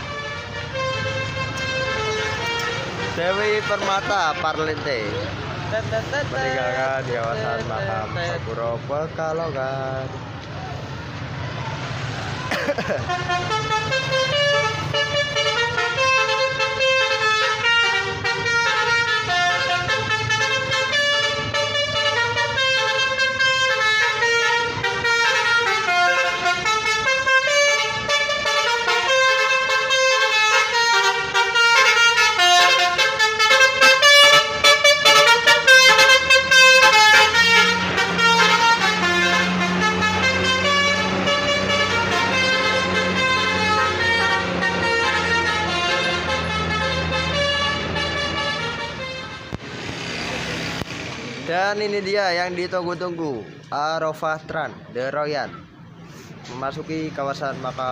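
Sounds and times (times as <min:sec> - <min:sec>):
multi-tone bus horn melody: 0:00.0 - 0:07.4, 0:12.6 - 0:49.6.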